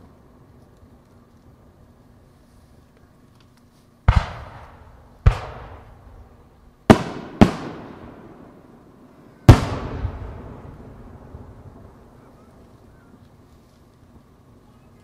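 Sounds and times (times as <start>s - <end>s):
firework bangs with rolling echo: 4.1s - 13.0s.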